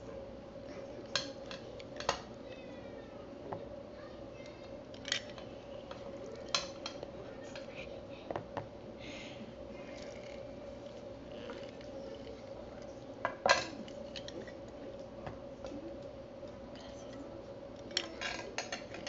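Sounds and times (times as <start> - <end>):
steady hum: 0.0 - 19.0
utensils clinking on plastic bowl: 5.0 - 7.7.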